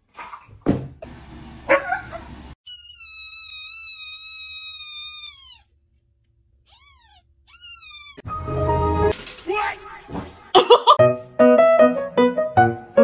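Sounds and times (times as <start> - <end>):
kitten mewing: 2.7 - 5.7, 6.7 - 8.2.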